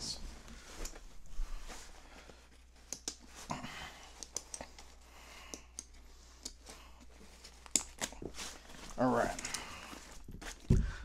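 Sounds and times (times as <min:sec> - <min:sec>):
straps rustling: 0:05.8 - 0:11.0.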